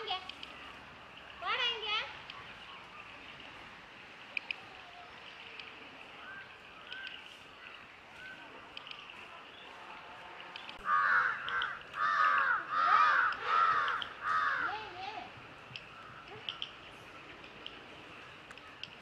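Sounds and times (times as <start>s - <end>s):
crow cawing: 10.8s - 14.9s.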